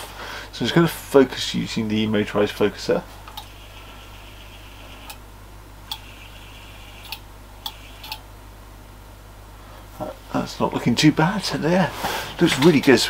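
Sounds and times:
motorised focuser whine: 2.2 - 8.4
sharp clicks: 3.3 - 3.6, 5.0 - 5.2, 5.8 - 6.2, 7.0 - 8.2.

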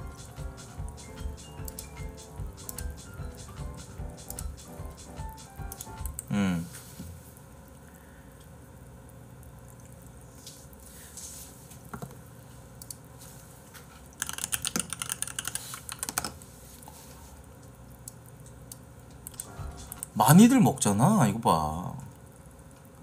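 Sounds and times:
rapid keyboard typing: 0.0 - 6.3, 14.1 - 16.4, 19.3 - 20.5
scattered clicks: 1.6 - 2.0, 2.6 - 2.9, 4.2 - 4.7, 5.6 - 6.3.

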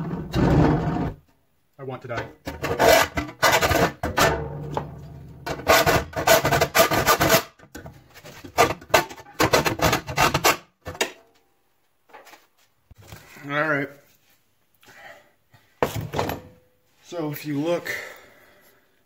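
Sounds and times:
hacksaw sawing sheet metal: 2.5 - 4.0, 5.5 - 7.6.

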